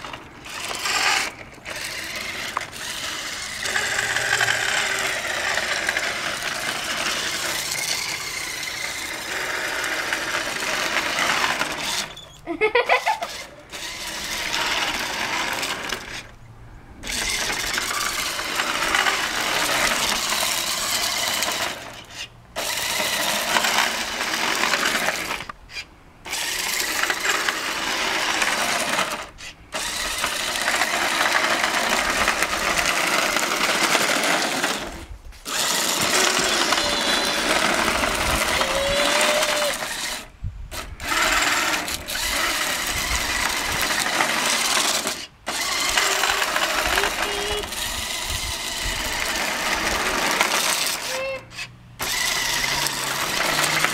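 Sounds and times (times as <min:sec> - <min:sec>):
toy car electric motor buzzing: 0:00.0 - 0:16.4, 0:17.0 - 0:53.9.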